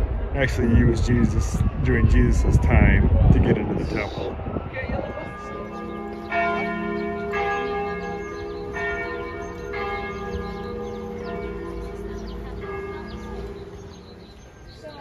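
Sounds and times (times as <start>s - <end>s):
church bells ringing: 3.8s - 15.0s.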